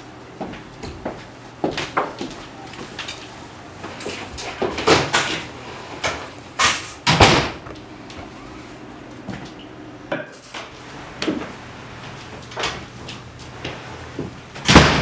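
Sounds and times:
kitchen knocks and bangs: 6.6s - 7.7s, 14.6s - 15.0s.

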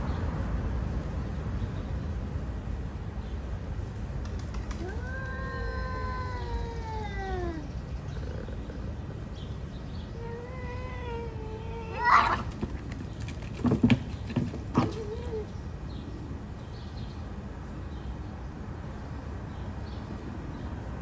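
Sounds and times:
cat hissing: 4.8s - 9.0s, 10.2s - 12.6s
cats yowling: 4.8s - 9.0s, 10.1s - 12.7s, 14.8s - 15.5s.

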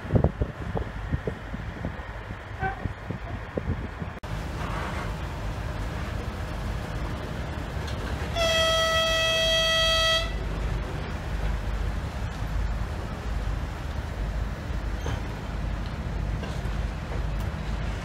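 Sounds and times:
locomotive engine rumble: 0.0s - 18.0s
locomotive horn blast: 8.3s - 10.5s.

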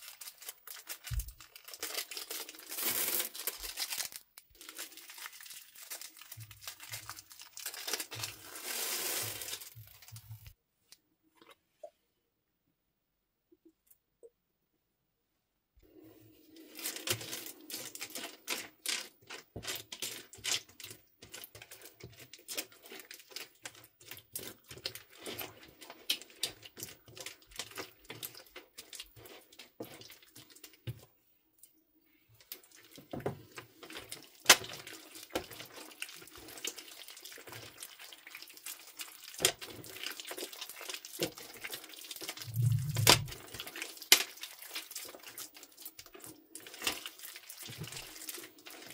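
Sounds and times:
low thud: 42.5s - 43.4s.

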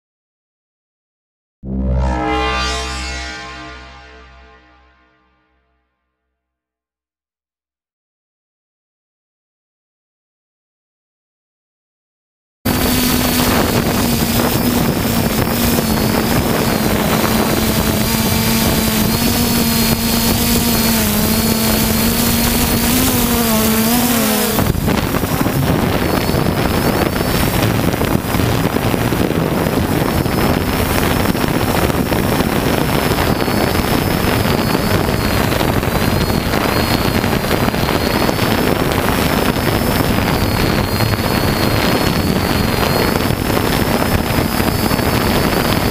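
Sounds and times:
lower hum: 1.6s - 5.8s, 12.7s - 45.9s
drone motors whining: 12.7s - 45.9s
wind rushing over microphone: 12.7s - 45.9s.

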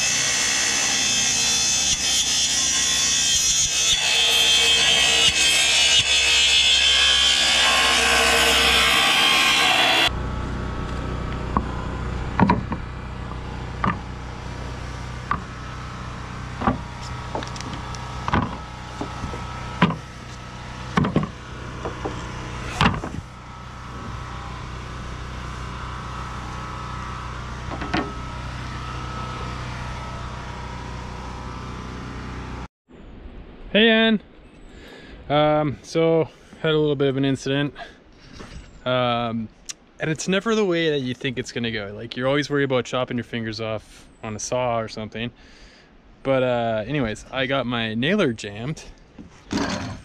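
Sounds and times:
track saw cutting boards: 0.0s - 32.7s
decking pieces knocking and clattering: 21.0s - 21.3s.

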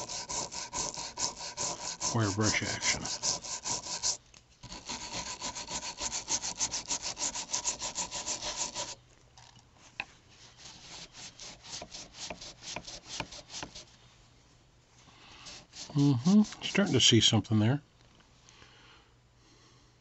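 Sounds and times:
wire brush scrubbing metal: 0.0s - 9.0s, 10.4s - 13.9s, 15.4s - 17.4s.

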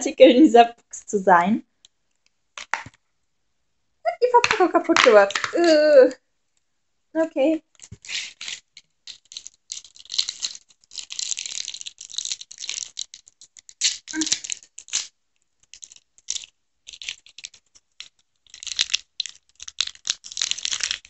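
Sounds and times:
candy wrapper crinkling: 2.6s - 3.0s, 4.1s - 6.1s, 7.6s - 21.0s.

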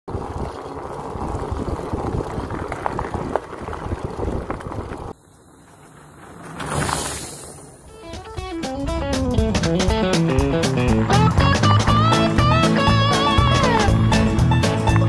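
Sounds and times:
wind buffeting microphone: 0.1s - 5.2s
mountain bike rolling on gravel: 0.1s - 15.0s.

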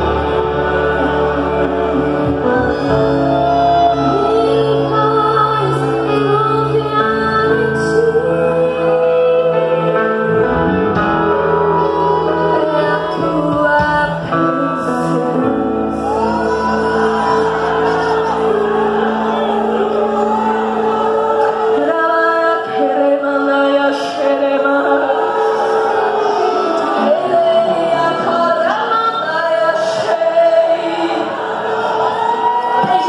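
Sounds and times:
woman singing into microphone: 0.0s - 10.5s, 11.3s - 33.0s
sustained musical accompaniment: 0.0s - 33.0s.

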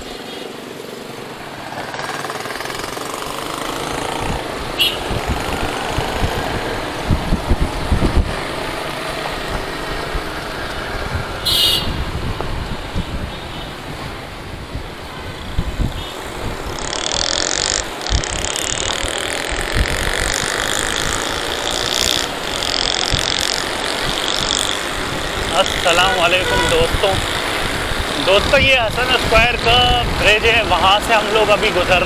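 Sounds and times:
motorcycle engine running: 1.8s - 11.7s, 15.4s - 28.6s
wind buffeting microphone: 2.8s - 32.0s.

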